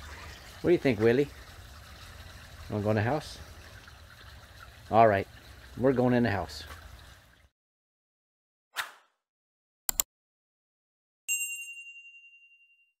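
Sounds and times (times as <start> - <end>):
bell ding: 11.3 - 13.0.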